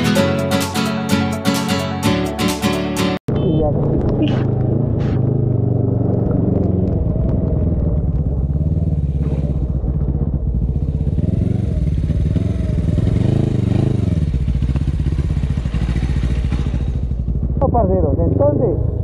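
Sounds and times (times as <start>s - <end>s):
motorcycle engine running: 4.1s - 19.0s.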